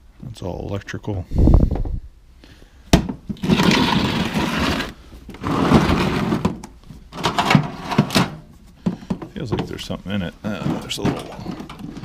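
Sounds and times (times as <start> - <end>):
toolbox scraping on concrete: 3.3 - 8.5, 10.4 - 12.0.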